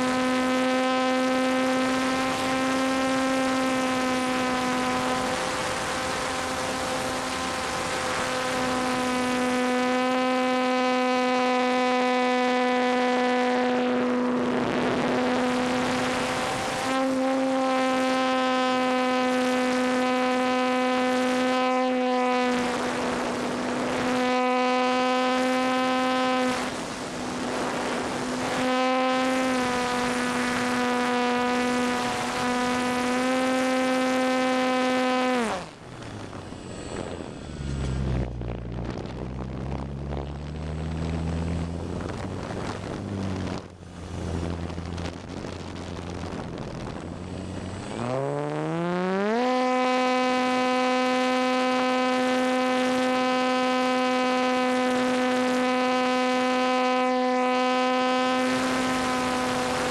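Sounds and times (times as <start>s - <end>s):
electric motor and propeller whine: 0.0s - 59.9s
rush of air noise: 25.3s - 30.8s, 34.8s - 49.1s.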